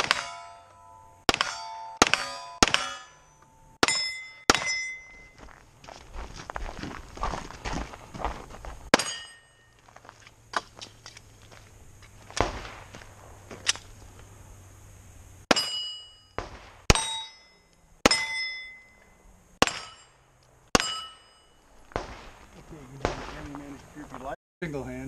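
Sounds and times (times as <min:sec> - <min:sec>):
pistol shots: 0:00.0 - 0:00.4, 0:01.3 - 0:03.2, 0:12.4 - 0:13.0, 0:16.4 - 0:17.2, 0:19.6 - 0:20.0, 0:21.9 - 0:23.8
steel target clanging: 0:00.0 - 0:05.4, 0:08.9 - 0:09.8, 0:15.5 - 0:22.3.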